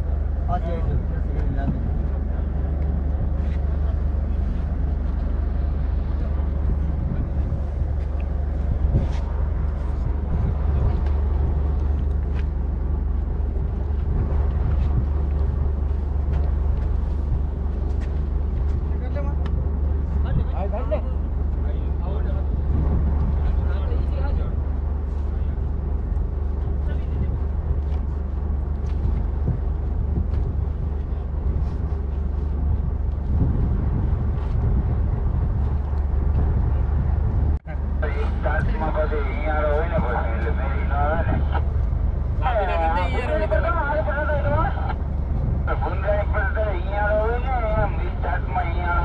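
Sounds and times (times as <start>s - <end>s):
boat engine droning: 0.0s - 49.0s
wind buffeting microphone: 0.0s - 49.0s.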